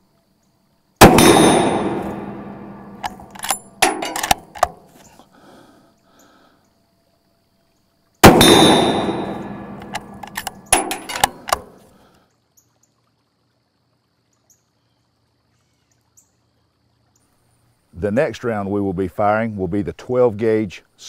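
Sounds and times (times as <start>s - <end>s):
rifle shot hitting metal panel: 1.0s - 4.8s, 8.2s - 11.8s
sharp knocks and clicks: 1.0s - 4.8s, 8.2s - 11.8s.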